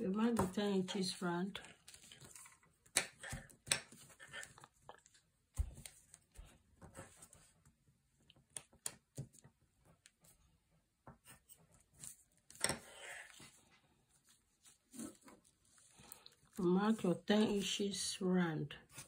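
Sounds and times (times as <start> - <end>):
paper rustling: 1.6 - 2.8.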